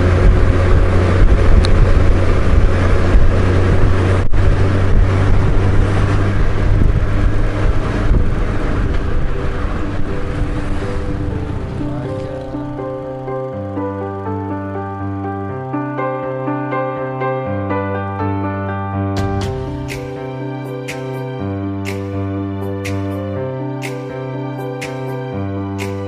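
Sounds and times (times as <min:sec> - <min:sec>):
wind rushing on microphone: 0:00.0 - 0:12.8
motorcycle engine drone: 0:00.0 - 0:17.7.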